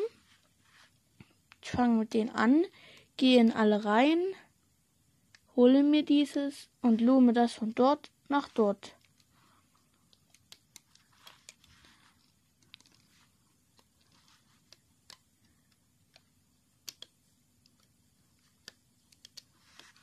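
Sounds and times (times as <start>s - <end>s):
faint clicks and ticks: 5.2s - 5.5s, 8.0s - 20.0s.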